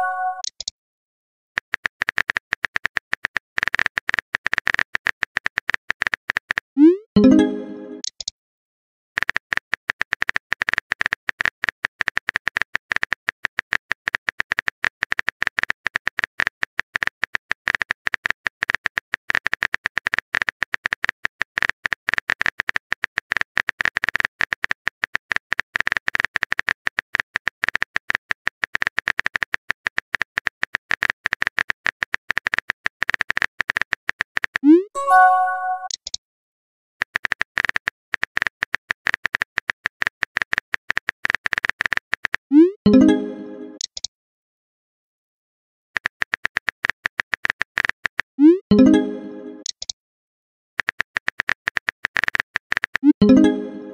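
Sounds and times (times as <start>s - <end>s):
phone keyboard typing clicks: 0.0s - 0.7s, 9.2s - 36.2s
rising notification chime: 6.8s - 8.0s, 35.0s - 35.9s, 42.9s - 43.8s, 48.7s - 49.6s, 53.2s - 53.9s.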